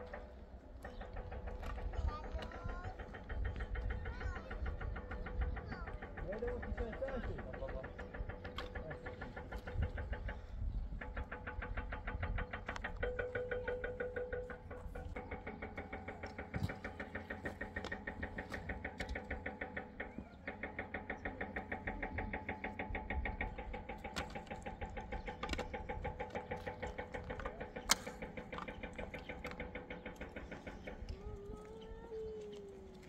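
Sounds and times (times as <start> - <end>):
steady machine hum: 0.0 - 33.0
small machine ticking: 1.0 - 32.1.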